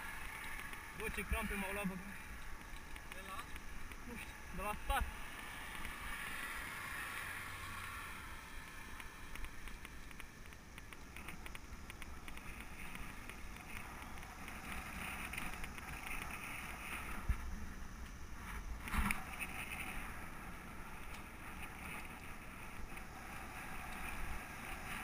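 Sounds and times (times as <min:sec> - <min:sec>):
tyre and road noise: 0:00.0 - 0:25.0.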